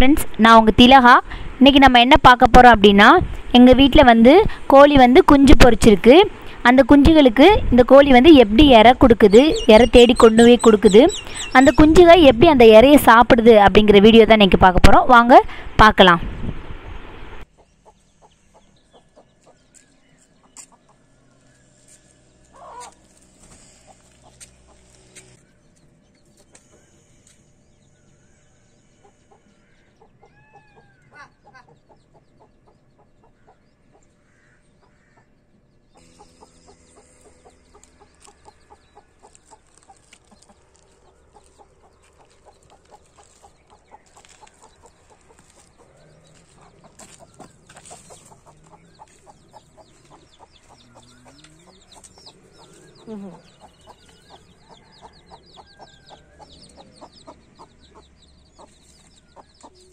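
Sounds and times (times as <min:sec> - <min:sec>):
hen clucking: 0:08.3 - 0:12.8, 0:22.4 - 0:25.4, 0:28.9 - 0:59.9
small ticks: 0:36.0 - 0:49.4.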